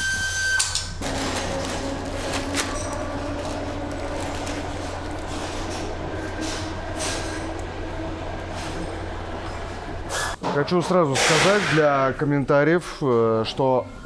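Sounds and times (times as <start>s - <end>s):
machine humming: 0.9s - 10.4s.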